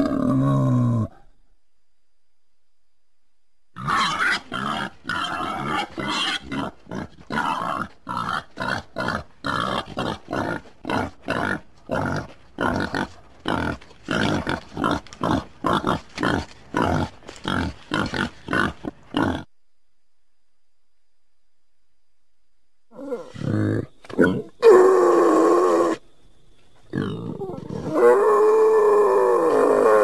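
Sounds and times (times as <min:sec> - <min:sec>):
wild boar grunting: 0:03.8 - 0:19.5, 0:26.9 - 0:30.0.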